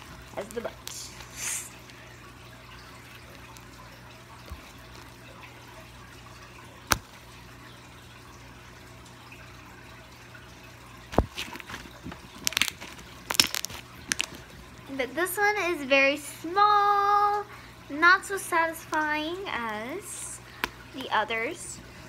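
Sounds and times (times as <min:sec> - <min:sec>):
air bubbles popping in slime: 0:06.9 - 0:07.1, 0:11.1 - 0:14.6
slime stretched by hand: 0:11.1 - 0:14.5.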